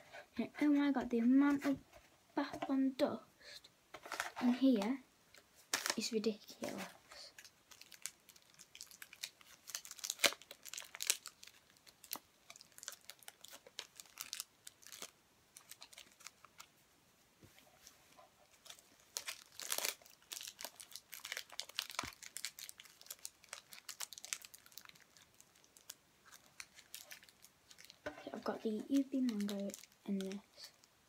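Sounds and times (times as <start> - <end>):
wrapper crinkling: 5.6 - 16.7, 18.4 - 31.0.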